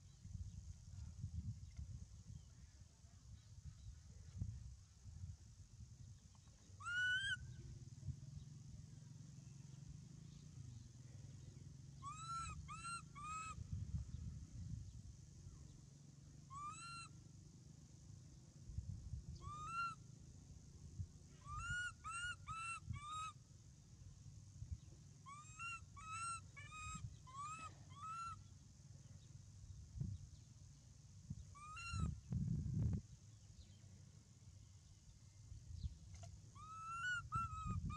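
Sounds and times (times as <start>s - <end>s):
baby monkey squeaky calls: 6.8s - 7.4s, 12.0s - 13.6s, 16.5s - 17.1s, 19.4s - 20.0s, 21.4s - 23.3s, 25.3s - 28.4s, 31.6s - 32.1s, 36.6s - 37.9s.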